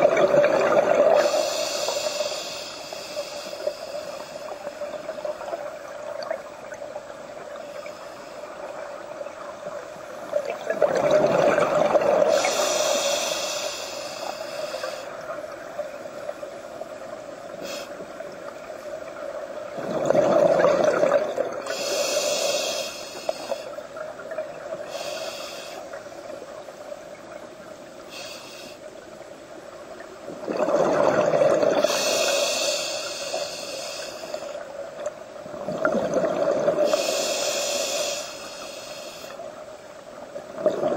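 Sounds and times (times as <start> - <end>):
faint hum: 0.0 - 40.9
regulator hiss: 0.1 - 10.5, 11.8 - 19.5, 21.6 - 29.6, 31.8 - 34.9, 36.7 - 40.0
diver exhaling bubbles: 10.6 - 12.6, 19.8 - 21.6, 30.4 - 32.0.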